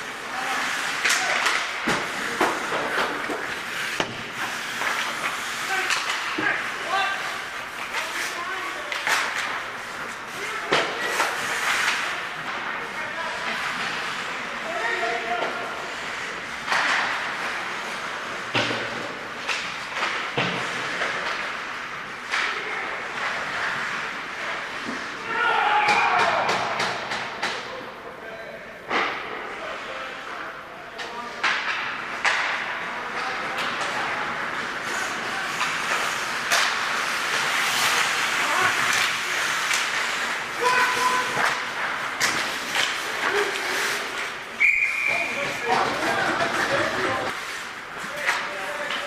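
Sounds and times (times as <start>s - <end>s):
skate blades scraping ice: 0.0s - 25.5s, 31.4s - 49.0s
hockey sticks and puck knocking: 0.3s - 14.4s, 16.3s - 23.5s, 25.8s - 27.8s, 30.9s - 44.6s.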